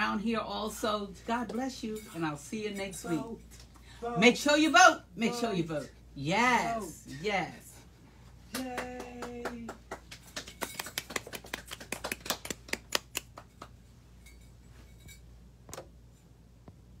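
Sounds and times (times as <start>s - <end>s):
people clapping: 8.5s - 13.8s.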